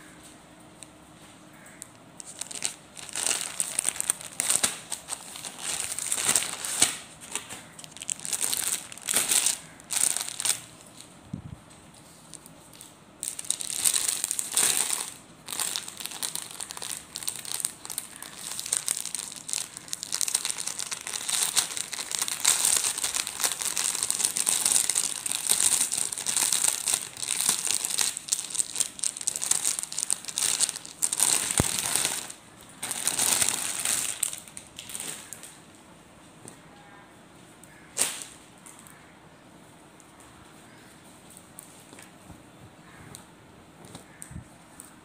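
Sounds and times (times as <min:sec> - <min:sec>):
plastic bag crinkling: 0:02.2 - 0:35.5.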